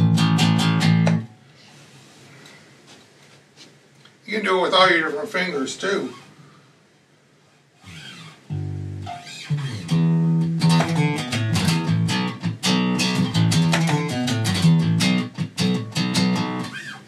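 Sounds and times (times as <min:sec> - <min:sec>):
electric bass plucked notes: 0:00.0 - 0:01.3, 0:08.5 - 0:16.8.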